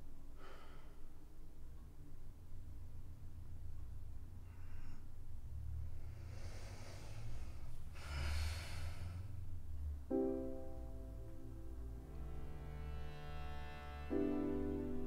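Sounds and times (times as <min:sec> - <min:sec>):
low steady hum: 0:00.0 - 0:15.0
sustained piano chord: 0:09.6 - 0:15.0.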